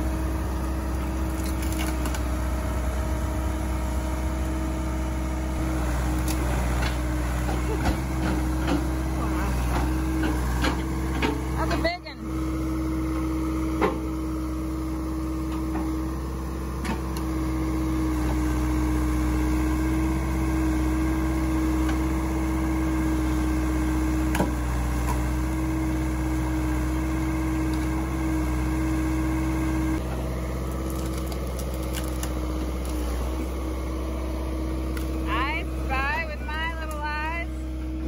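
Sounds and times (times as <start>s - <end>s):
backhoe diesel engine running: 0.0s - 38.0s.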